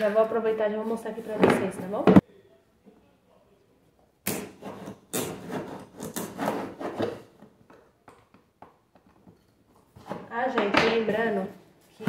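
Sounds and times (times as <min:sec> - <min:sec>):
knife cutting tape and cardboard: 0:04.2 - 0:07.3.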